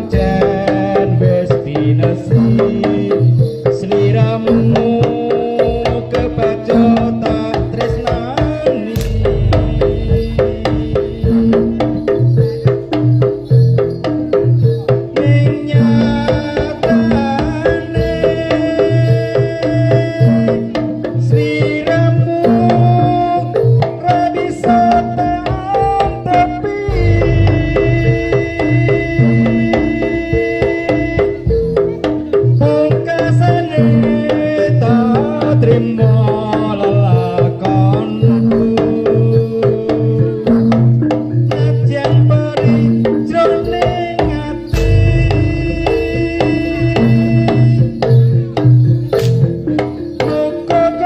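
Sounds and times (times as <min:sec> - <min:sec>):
gongs and metallophones beat: 0:00.0 - 0:51.0
sustained melodic line: 0:09.0 - 0:12.0, 0:26.9 - 0:29.7, 0:44.7 - 0:47.7
deep drum strokes: 0:09.0 - 0:12.3, 0:26.9 - 0:30.2, 0:44.7 - 0:47.7
tuned gong notes: 0:09.0 - 0:12.3, 0:26.9 - 0:30.0, 0:44.7 - 0:47.8.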